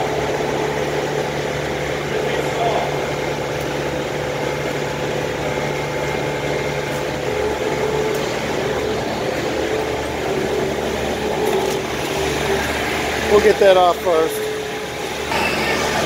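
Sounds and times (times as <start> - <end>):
concrete saw engine idling: 0.0 - 16.0.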